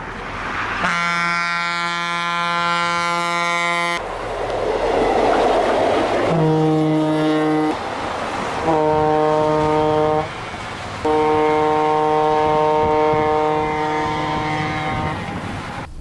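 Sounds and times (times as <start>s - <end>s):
passing train rumble: 0.0s - 16.0s
train air horn blasts: 0.8s - 4.0s, 6.3s - 7.8s, 8.6s - 15.9s.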